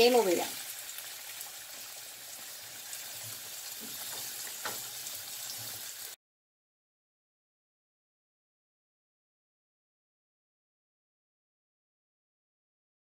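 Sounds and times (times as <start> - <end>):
stew simmering in a frying pan: 0.0 - 6.2.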